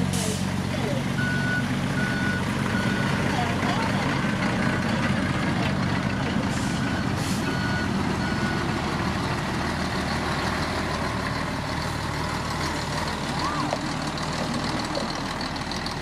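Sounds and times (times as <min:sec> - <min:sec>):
dump truck engine rumble: 0:00.0 - 0:16.0
reversing alarm beeping: 0:01.2 - 0:03.2, 0:06.6 - 0:08.8.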